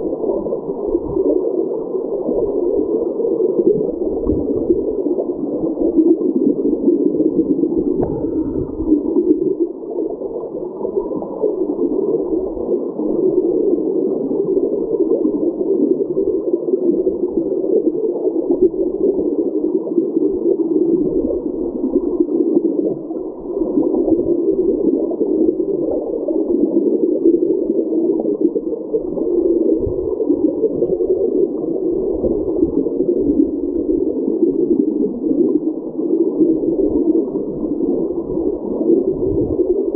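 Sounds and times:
muffled underwater creek rushing: 0:00.0 - 0:39.9
low underwater knocks: 0:08.0 - 0:08.9.

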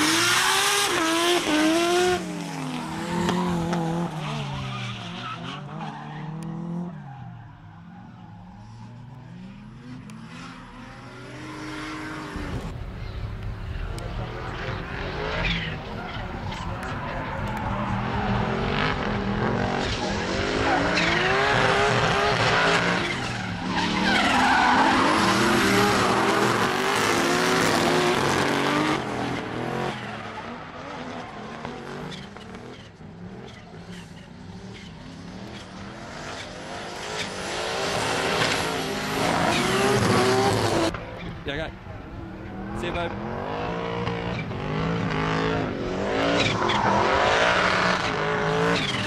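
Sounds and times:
car engines revving hard: 0:00.0 - 0:49.0
tyre screech and skidding: 0:00.0 - 0:49.0.

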